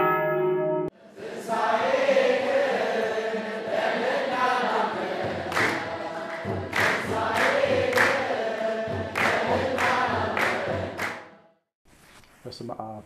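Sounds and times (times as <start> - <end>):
church choir singing hymn: 0.9 - 11.6
sharp percussive hits: 5.2 - 11.3.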